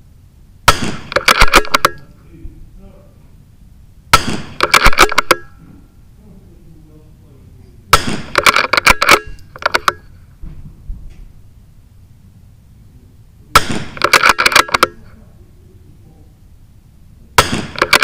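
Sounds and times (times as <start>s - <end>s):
rifle shots cracking: 0.6s - 2.1s, 4.1s - 5.6s, 7.9s - 10.1s, 13.5s - 15.0s, 17.4s - 18.0s.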